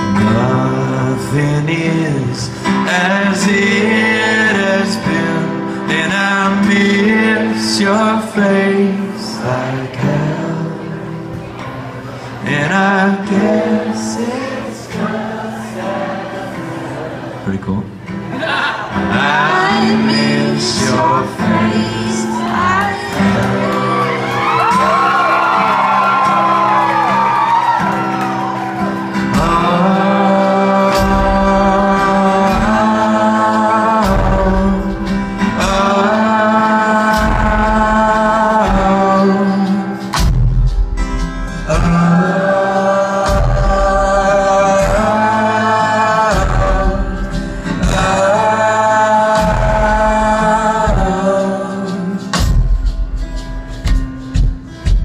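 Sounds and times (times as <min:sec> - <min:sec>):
person singing: 0:00.0 - 0:11.3, 0:18.4 - 0:28.0, 0:28.9 - 0:40.3, 0:41.4 - 0:53.0
guitar: 0:00.0 - 0:55.0
bass: 0:19.2 - 0:55.0
drum hits: 0:40.2 - 0:42.0.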